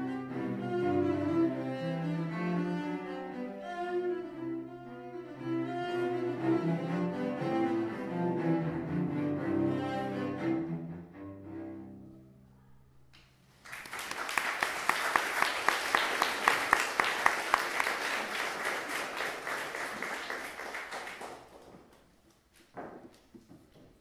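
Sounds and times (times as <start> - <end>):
audience applauding: 13.6 - 22.2.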